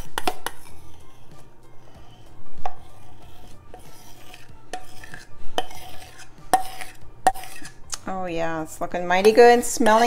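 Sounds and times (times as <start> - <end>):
metal spoon scraping bowl: 0.0 - 7.9, 8.6 - 10.0.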